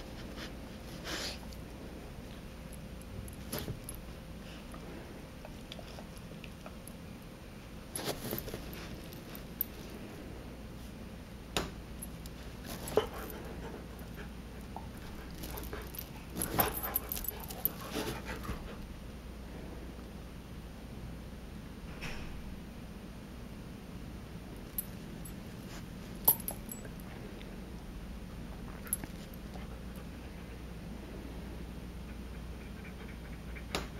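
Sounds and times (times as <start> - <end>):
chain collar jingling: 15.3 - 17.9.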